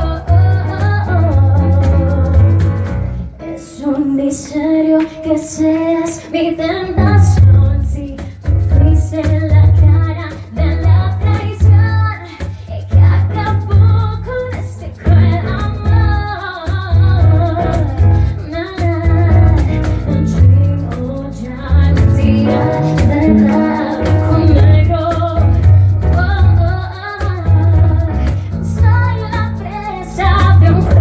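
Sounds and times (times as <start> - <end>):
woman singing: 0.0 - 2.8, 3.5 - 31.0
heavy low bass line: 6.9 - 9.0, 21.7 - 26.7.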